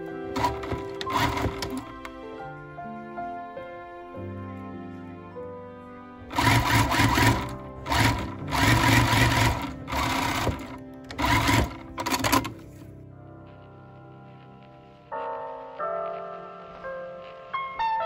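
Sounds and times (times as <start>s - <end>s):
soft background music: 0.0s - 18.0s
sewing machine stitching: 0.3s - 2.1s, 6.3s - 12.8s.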